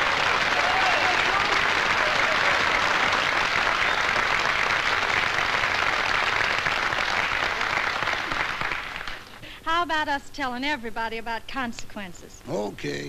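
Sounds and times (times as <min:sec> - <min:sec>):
audience applauding and cheering: 0:00.0 - 0:09.4
recording hiss: 0:08.8 - 0:13.0.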